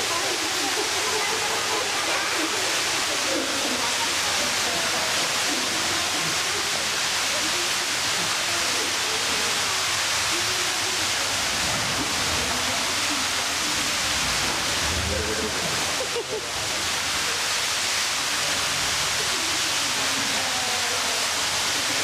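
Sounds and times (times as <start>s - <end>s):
murmuring voices: 0.0s - 22.0s
steady rushing hiss: 0.0s - 22.0s.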